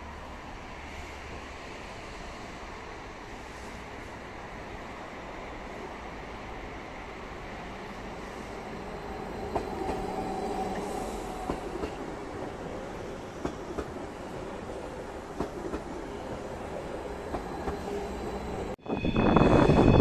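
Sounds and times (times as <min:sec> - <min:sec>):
train rolling with electric whine: 0:17.0 - 0:20.0.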